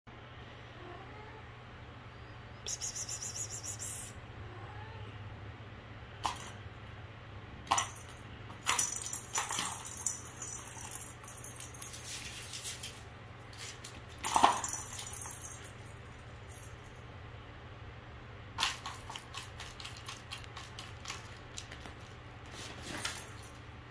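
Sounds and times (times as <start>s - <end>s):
steady low hum: 0.1s - 23.9s
plastic cat toy clicking and rattling: 18.6s - 22.1s.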